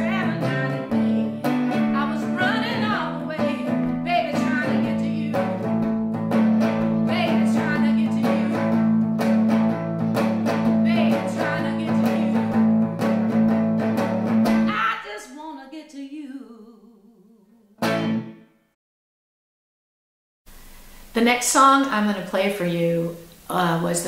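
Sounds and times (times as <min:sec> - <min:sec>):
woman singing blues: 0:00.0 - 0:09.1, 0:10.4 - 0:13.2, 0:14.5 - 0:17.8
strummed guitar chords: 0:00.0 - 0:14.7, 0:17.8 - 0:18.5.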